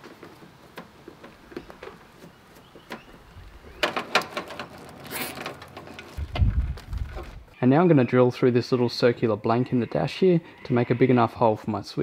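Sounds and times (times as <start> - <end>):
short scratchy burst: 5.0 - 5.5.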